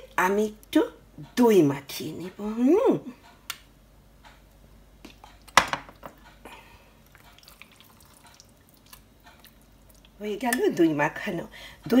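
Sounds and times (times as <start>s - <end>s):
wet squelches of mixing by hand: 7.0s - 10.7s.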